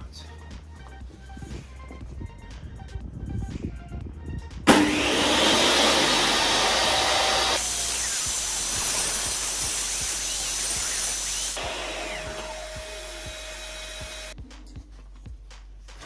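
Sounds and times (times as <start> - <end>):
shop vacuum running: 4.7 - 14.4
table saw running: 4.7 - 14.4.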